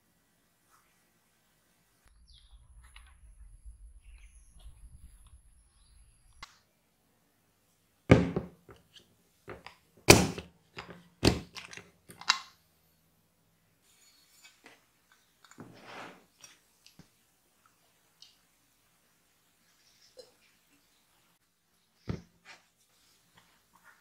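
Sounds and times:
soft scrape: 0:15.6 - 0:16.3.

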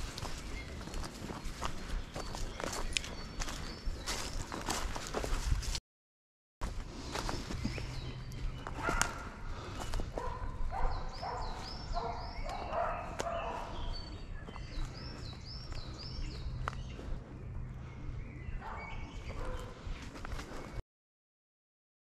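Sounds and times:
footsteps crunching through dry leaves: 0:00.0 - 0:05.8, 0:06.6 - 0:10.3.

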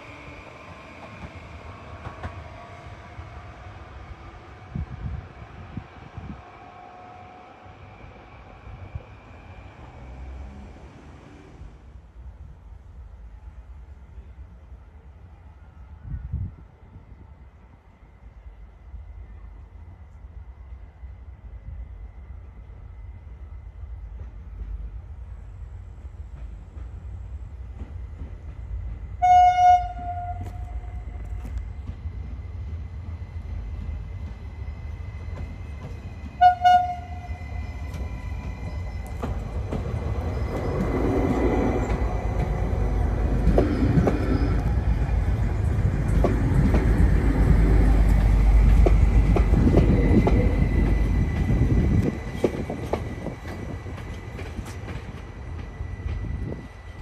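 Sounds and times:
high-pitched train whine: 0:00.0 - 0:12.3, 0:13.1 - 0:57.0
train passing with rail rumble: 0:00.0 - 0:57.0
train horn toots: 0:29.2 - 0:31.2, 0:36.4 - 0:37.4.

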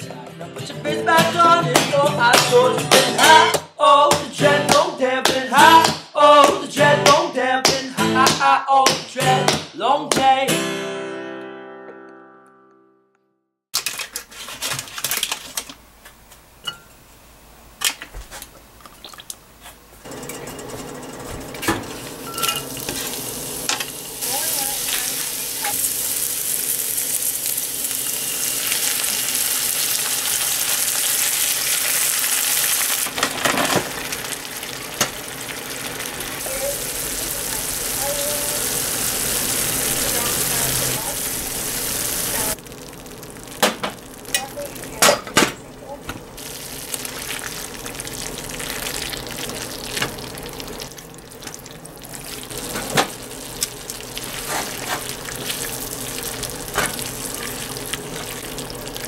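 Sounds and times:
onion and garlic sizzling: 0:02.0 - 0:08.4, 0:18.4 - 0:59.0
knocks in a pan: 0:43.6 - 0:46.2.

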